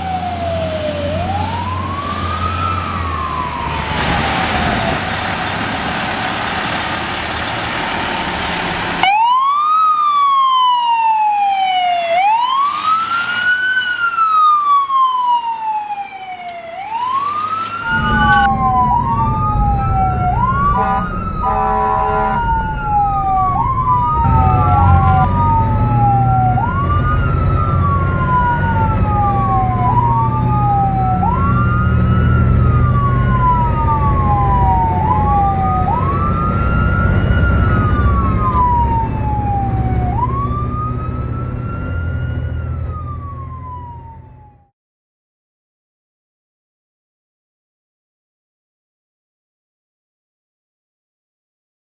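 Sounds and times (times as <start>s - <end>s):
engine and road rumble: 0.0s - 44.7s
sirens wailing: 0.0s - 44.7s
vehicle horn: 20.5s - 22.6s.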